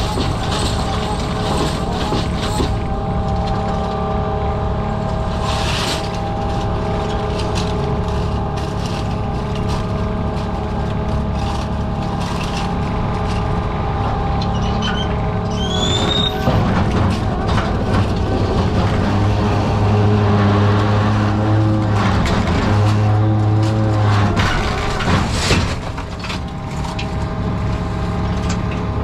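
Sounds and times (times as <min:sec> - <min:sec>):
high squeal: 0:00.0 - 0:04.0, 0:14.0 - 0:16.6
boat engine and machinery whine: 0:00.0 - 0:29.0.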